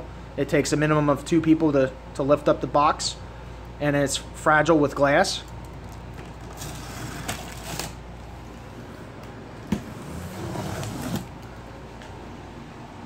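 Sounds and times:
blade scraping along packing tape: 6.4s - 8.0s, 9.9s - 11.4s.

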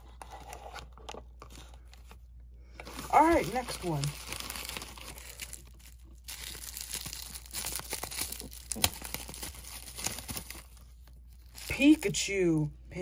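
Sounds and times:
plastic wrapping crinkling: 2.8s - 12.3s.

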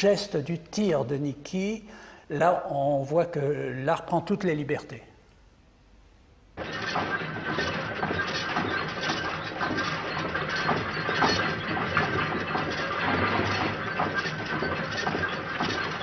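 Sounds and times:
machine metallic clatter and clicks: 6.6s - 16.0s.

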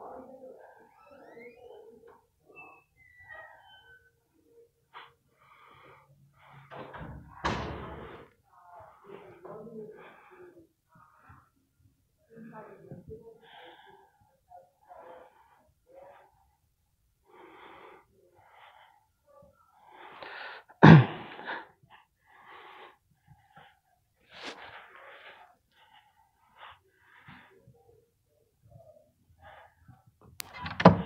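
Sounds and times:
person breathing: 4.9s - 11.6s, 13.4s - 16.6s, 17.2s - 30.1s.

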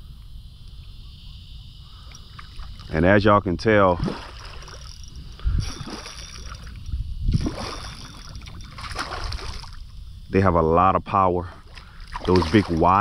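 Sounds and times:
water lapping against kayak hull: 2.0s - 3.0s, 3.9s - 10.1s, 11.3s - 13.0s.

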